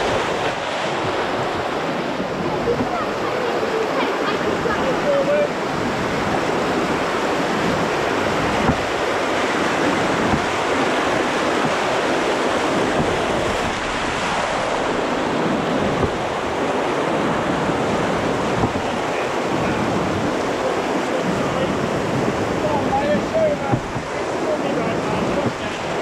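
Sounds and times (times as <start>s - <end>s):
white-water rapid rushing: 0.0s - 26.0s
short knocks on canoe: 7.6s - 15.0s, 15.7s - 16.7s, 18.4s - 19.1s, 21.2s - 24.3s, 25.0s - 26.0s.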